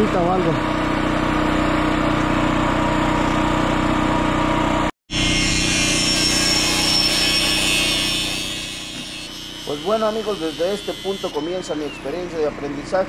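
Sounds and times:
steady motor hum: 0.0 - 13.0
angle grinder grinding steel: 5.1 - 12.6.

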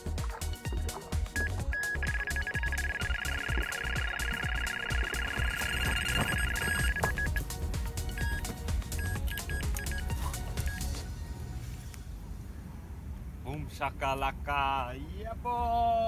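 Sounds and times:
background music: 0.0 - 12.2
electronic bite alarm beeps: 1.3 - 7.4, 8.1 - 10.9.

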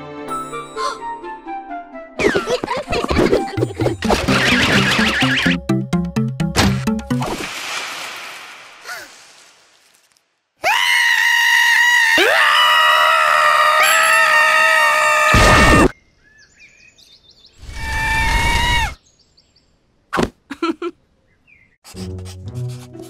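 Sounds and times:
laughter: 2.3 - 3.9
cartoon children screaming: 10.6 - 15.9, 17.6 - 19.0.

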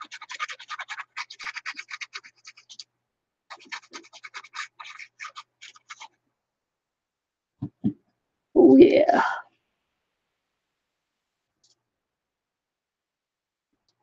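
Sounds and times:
applicator tip scratching paper: 0.0 - 2.9, 3.5 - 6.2.

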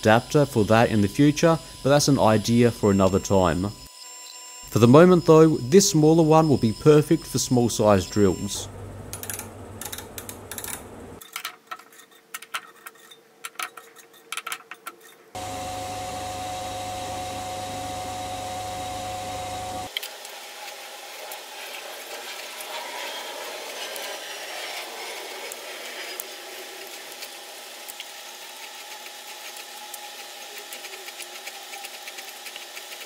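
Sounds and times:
lathe running with whine: 15.4 - 33.0.

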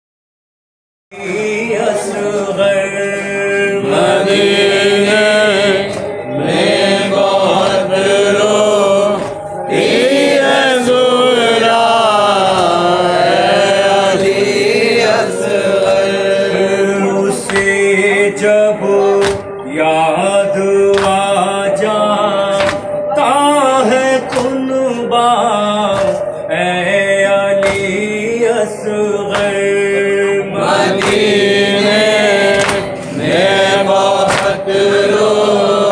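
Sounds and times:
mourners' voices holding notes: 1.2 - 35.9
man chanting into a microphone: 10.6 - 35.9
chest-beating slaps: 12.5 - 13.2, 17.4 - 17.9, 19.2 - 19.6, 20.9 - 21.3, 22.6 - 23.0, 24.3 - 24.7, 25.9 - 26.3, 27.6 - 28.2, 29.3 - 29.7, 30.9 - 31.5, 32.4 - 34.7.

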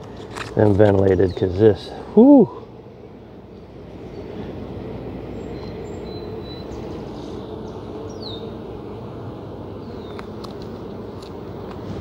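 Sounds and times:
honeybees buzzing: 0.0 - 12.0
faint high bird chirps: 5.3 - 8.5.

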